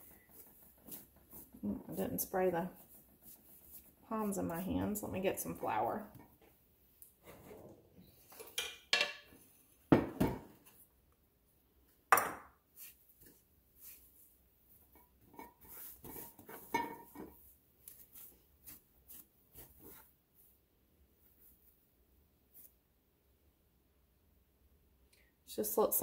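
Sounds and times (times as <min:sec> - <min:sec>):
hands kneading dough: 0:00.0 - 0:07.4, 0:12.6 - 0:23.0.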